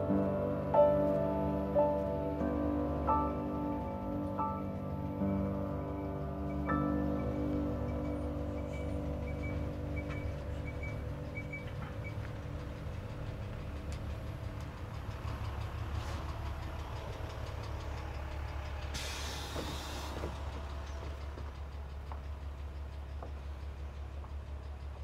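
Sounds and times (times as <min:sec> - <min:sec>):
bus engine idling: 0:00.0 - 0:25.0
compressed air hiss: 0:19.0 - 0:20.2.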